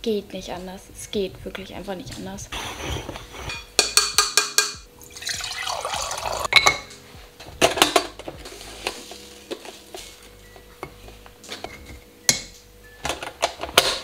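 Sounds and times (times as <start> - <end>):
liquid pouring: 5.0 - 6.5.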